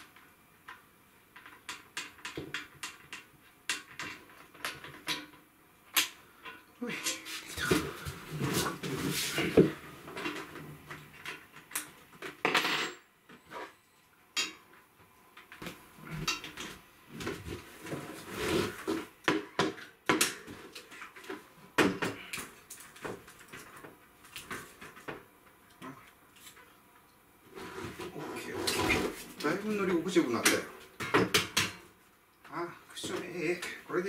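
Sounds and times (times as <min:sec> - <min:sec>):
metal clicks and knocks on bike: 0:00.2 - 0:06.6.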